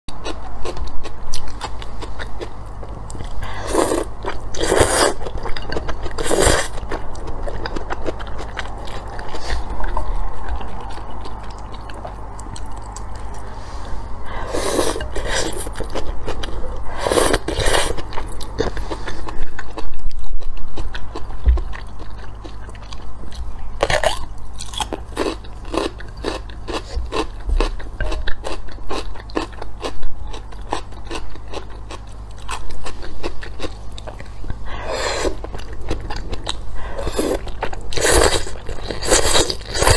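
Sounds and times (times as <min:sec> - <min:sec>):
crunchy chewing of pickle: 0:00.1 - 0:39.9
noodles slurped: 0:03.4 - 0:06.8.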